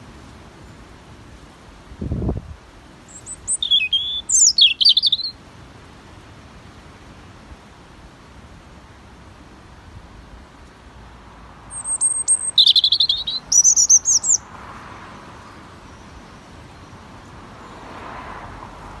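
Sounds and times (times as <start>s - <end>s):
robin singing: 3.1s - 5.4s, 11.7s - 14.5s, 15.4s - 17.8s.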